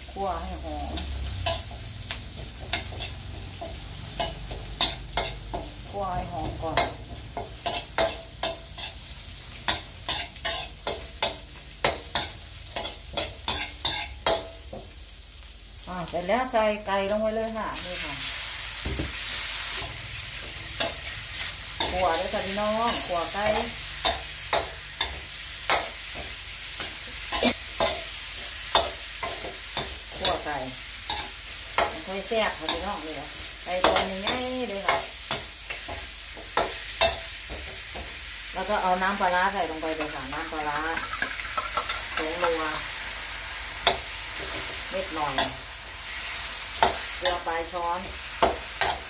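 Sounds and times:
oil sizzling: 0:00.0 - 0:49.0
metal spatula scraping a wok: 0:01.0 - 0:05.8, 0:06.7 - 0:14.5, 0:19.2 - 0:38.0.

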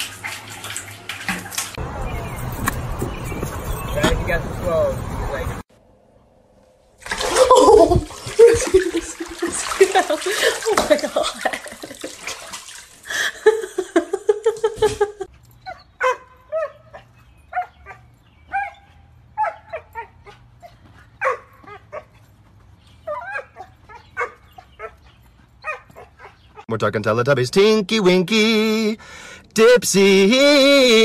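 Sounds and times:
small dog yipping and barking: 0:15.6 - 0:22.1, 0:23.0 - 0:25.0, 0:25.6 - 0:26.4.

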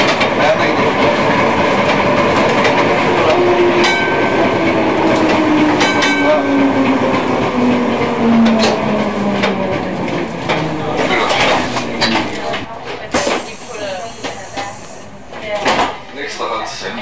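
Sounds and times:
tram motor whine: 0:00.0 - 0:12.7
tram wheels on rails: 0:00.0 - 0:17.0
tram bell ringing: 0:03.0 - 0:12.6.

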